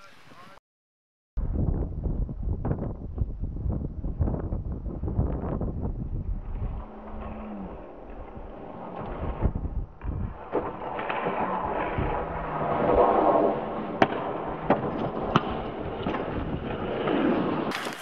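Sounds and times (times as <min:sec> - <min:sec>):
longboard wheels scraping on asphalt: 0:06.4 - 0:18.0.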